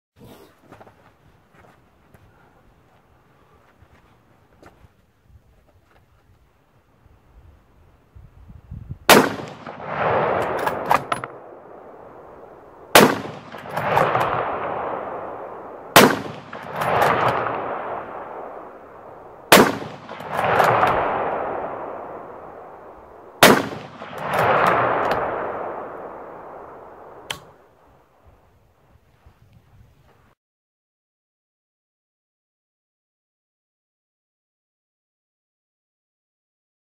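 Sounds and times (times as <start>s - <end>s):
rifle shots with echo: 9.1s - 27.6s.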